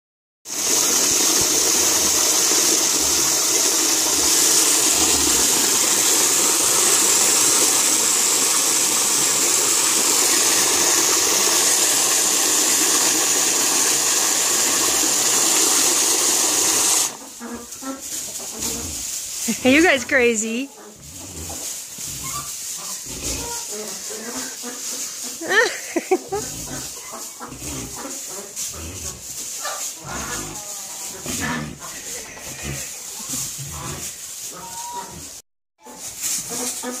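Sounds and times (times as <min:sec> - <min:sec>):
water running into container: 0:00.5 - 0:17.2.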